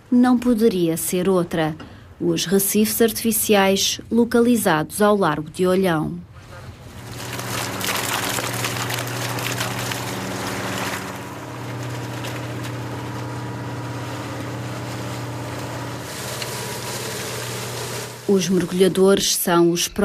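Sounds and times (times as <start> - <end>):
boat engine humming: 6.5 - 18.9
water gushing and splashing: 6.8 - 18.3.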